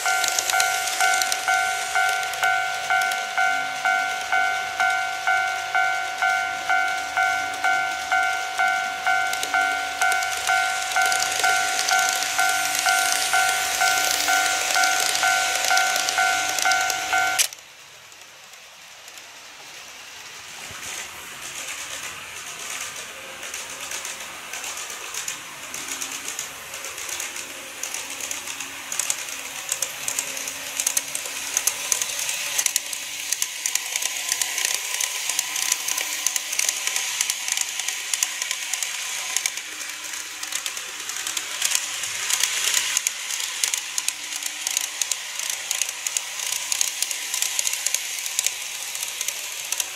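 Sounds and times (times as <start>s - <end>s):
level-crossing electronic chime: 0.0s - 17.5s
faint motor whine: 0.0s - 49.9s
model train wheels clicking on rail: 0.0s - 49.9s.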